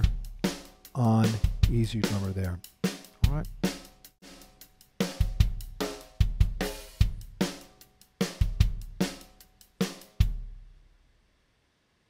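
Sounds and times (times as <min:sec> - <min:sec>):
kick drum thumps: 0:03.2 - 0:03.6.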